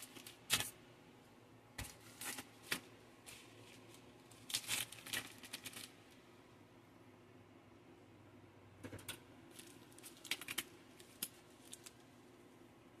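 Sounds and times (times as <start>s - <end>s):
packet crinkling and rustling: 1.8s - 6.0s, 9.5s - 12.0s.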